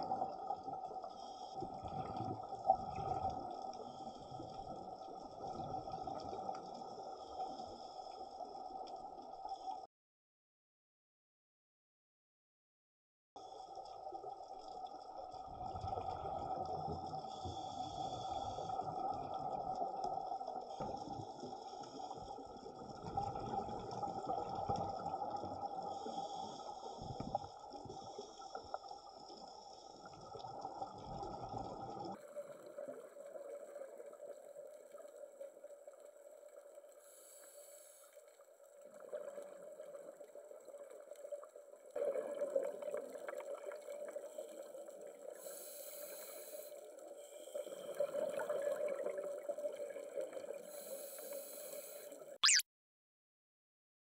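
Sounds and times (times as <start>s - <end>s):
underwater hiss: 0.1s - 9.6s, 15.9s - 23.0s, 25.3s - 30.9s, 36.8s - 38.5s, 44.1s - 52.4s.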